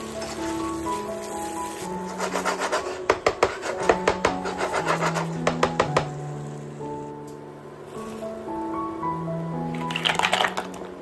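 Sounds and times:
wooden spatula scraping frying pan: 0.0s - 6.1s.

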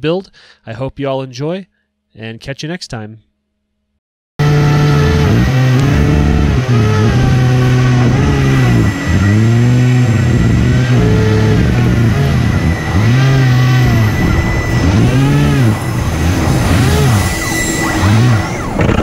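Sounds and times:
hovercraft motors and fans: 4.4s - 19.0s
steady high whine: 4.4s - 19.0s.

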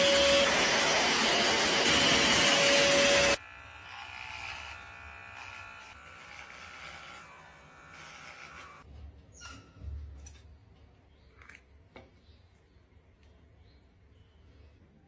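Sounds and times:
vacuum whining: 0.0s - 3.4s
electric trimmer buzzing: 0.0s - 8.9s.

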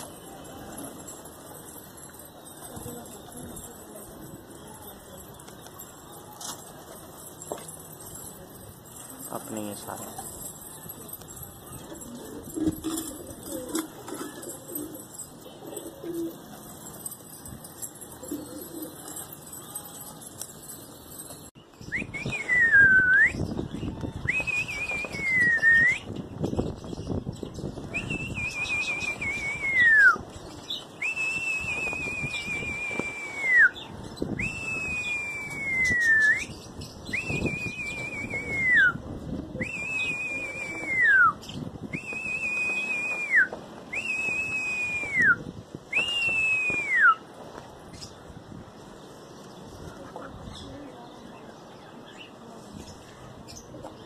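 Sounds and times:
person whistling: 21.9s - 23.4s, 31.0s - 33.8s, 34.4s - 36.5s, 39.6s - 45.4s, 46.0s - 47.2s.

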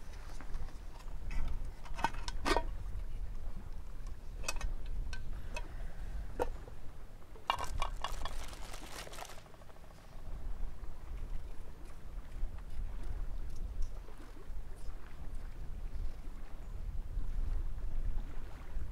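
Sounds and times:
metal pots clinking on rock: 7.5s - 9.2s.

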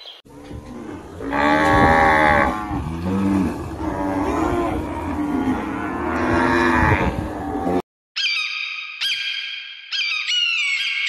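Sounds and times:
cattle mooing: 0.3s - 7.8s.

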